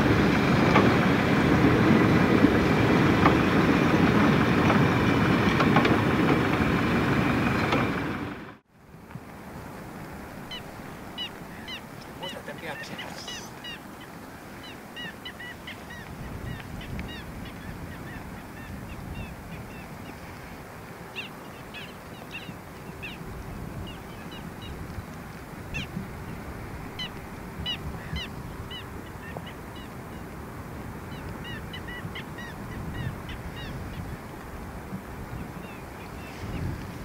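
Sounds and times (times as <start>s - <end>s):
train rumbling slowly: 0.0s - 37.0s
small birds chirping: 10.4s - 20.3s, 21.1s - 26.4s, 27.0s - 30.2s.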